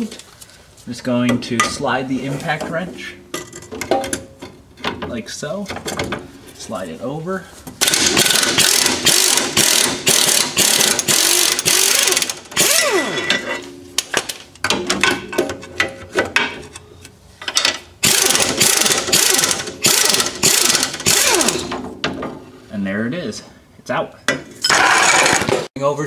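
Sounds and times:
impact wrench hammering: 0:07.8 - 0:15.5, 0:17.6 - 0:22.3.

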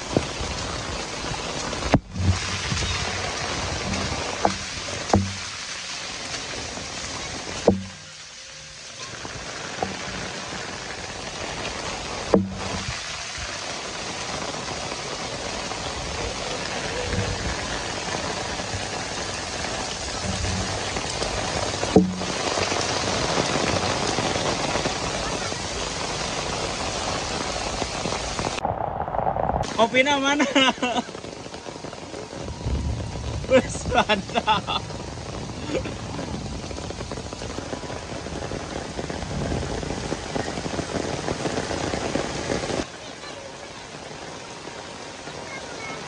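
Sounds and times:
heavy rain falling: 0:00.0 - 0:46.0
sharp knocks: 0:04.4 - 0:05.5, 0:07.6 - 0:08.1, 0:12.3 - 0:12.9, 0:21.9 - 0:22.4.

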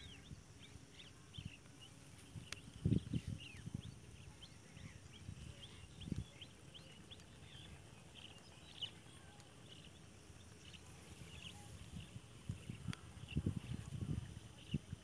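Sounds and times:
small birds chirping: 0:00.0 - 0:15.0
low rumbles on microphone: 0:11.0 - 0:15.0.

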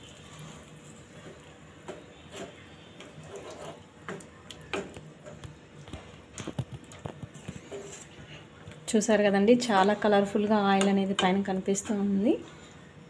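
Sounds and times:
spatula scraping a frying pan: 0:03.2 - 0:03.9.

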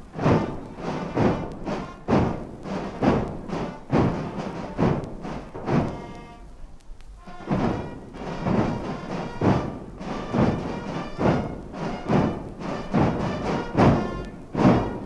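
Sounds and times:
brass and drum band playing march: 0:00.0 - 0:15.0
heavy drum beat: 0:00.0 - 0:15.0.

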